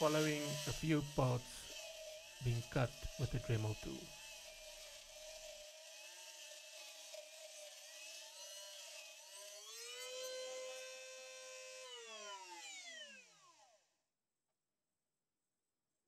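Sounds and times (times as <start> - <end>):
grinding hiss on metal: 0.0 - 7.6
rotary tool whining: 0.0 - 13.9.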